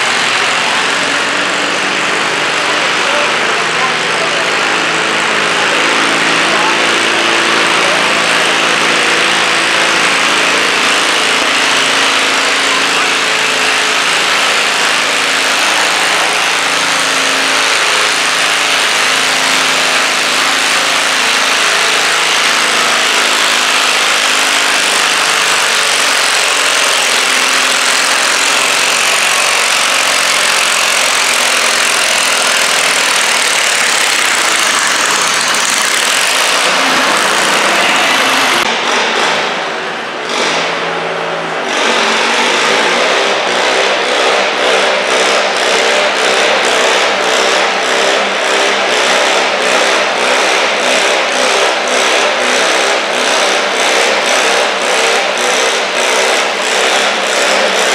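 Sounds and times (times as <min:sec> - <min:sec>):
high-pitched noise: 0:00.0 - 0:44.3
small tractor engine under load: 0:00.0 - 0:57.9.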